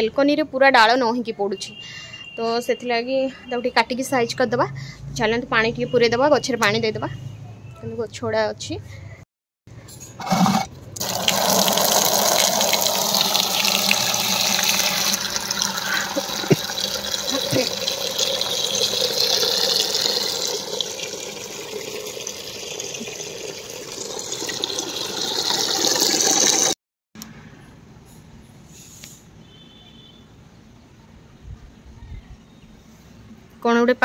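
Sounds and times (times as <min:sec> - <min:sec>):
water running into plastic bucket: 0:10.2 - 0:26.8
outdoor background noise: 0:27.2 - 0:34.0.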